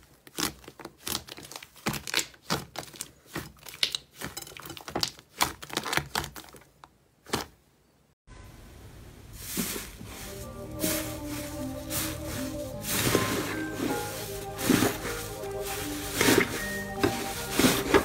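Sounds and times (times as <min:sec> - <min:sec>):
slime crackling and popping: 0:00.2 - 0:06.6.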